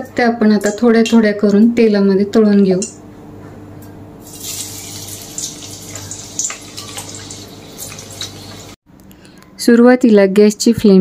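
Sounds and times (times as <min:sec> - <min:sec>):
frying in hot oil sizzling: 0:04.2 - 0:08.8
oil crackles and pops: 0:04.2 - 0:08.8.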